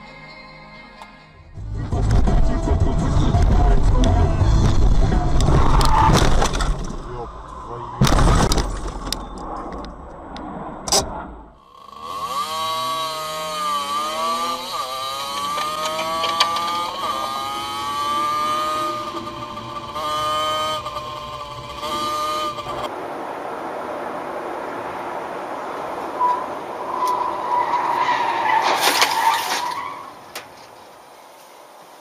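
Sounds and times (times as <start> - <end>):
motorcycle engine accelerating: 11.6 - 22.9.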